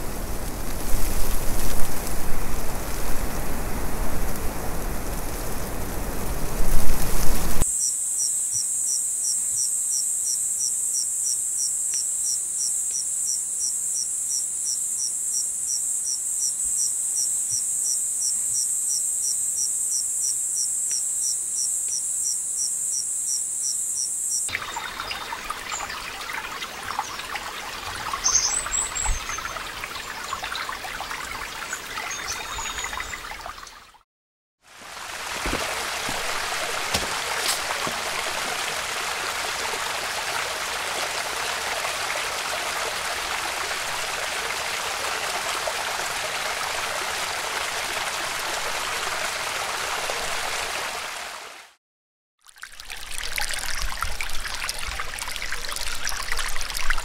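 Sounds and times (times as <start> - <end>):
flowing stream: 0.0 - 7.7, 24.5 - 34.0, 34.6 - 51.8, 52.4 - 57.0
insects trilling and chirping: 7.6 - 33.5.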